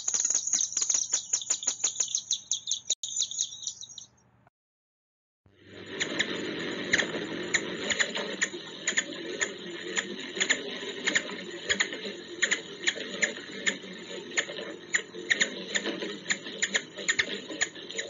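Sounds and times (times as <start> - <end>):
hummingbird chip notes: 0.0 - 4.2
steady low hum: 5.5 - 18.0.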